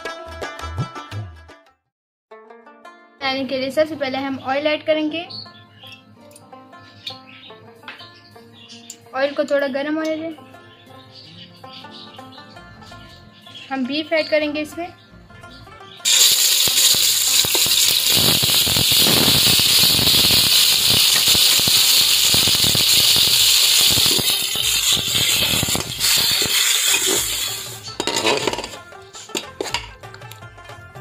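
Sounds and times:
meat sizzling in hot oil: 16.0 - 28.6
metal spoon clinking on pot: 23.6 - 30.0.

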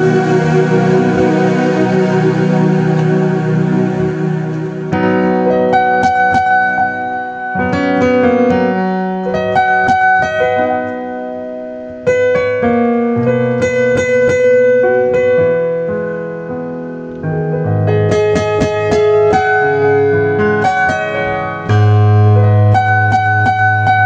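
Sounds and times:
slow piano ballad: 0.0 - 24.0.

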